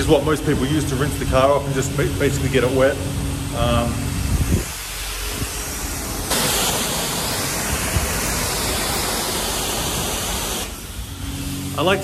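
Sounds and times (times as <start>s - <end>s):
pressure washer spraying water: 0.0s - 12.0s.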